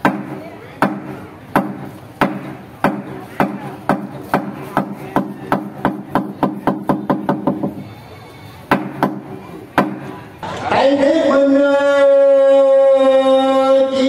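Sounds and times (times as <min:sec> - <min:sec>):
sharp knocking percussion: 0:00.0 - 0:07.8, 0:08.7 - 0:10.2.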